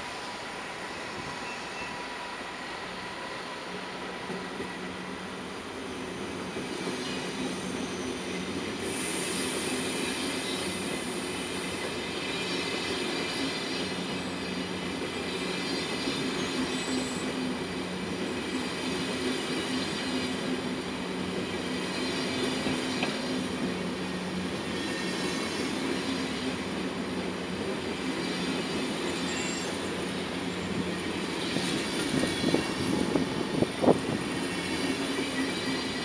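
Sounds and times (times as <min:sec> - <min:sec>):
train rolling over tracks: 0:00.0 - 0:36.0
high hiss: 0:05.9 - 0:14.4
high wheel squeal: 0:05.9 - 0:17.4, 0:21.4 - 0:26.6, 0:28.1 - 0:36.0.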